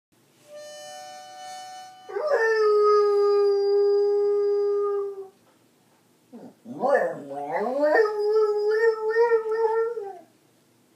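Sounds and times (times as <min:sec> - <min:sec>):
harmonica notes: 0:00.4 - 0:02.6
dog howling: 0:06.4 - 0:10.3.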